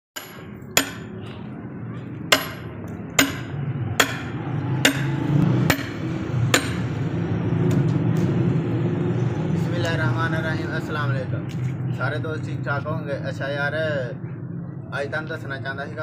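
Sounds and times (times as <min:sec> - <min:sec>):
axe chopping wood: 0:00.2 - 0:01.1, 0:02.3 - 0:06.0, 0:06.6 - 0:06.8.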